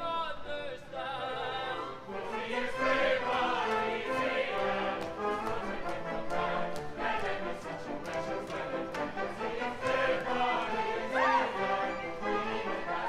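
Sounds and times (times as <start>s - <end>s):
chorus singing with orchestra: 0.0s - 13.0s
sharp percussive taps: 5.0s - 7.4s.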